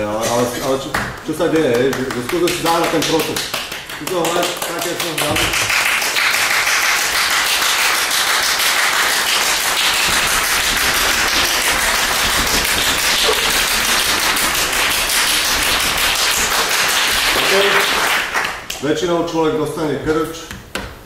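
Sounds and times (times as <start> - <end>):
man clapping fast: 0.8 - 18.8.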